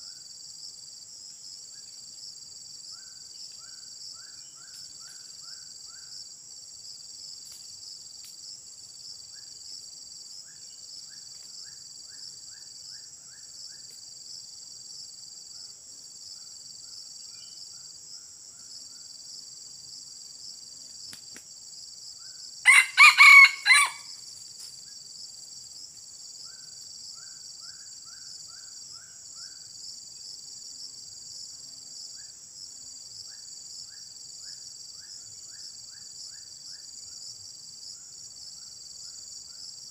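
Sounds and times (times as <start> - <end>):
high insect drone: 0.0 - 39.9
rooster crowing: 22.6 - 24.2.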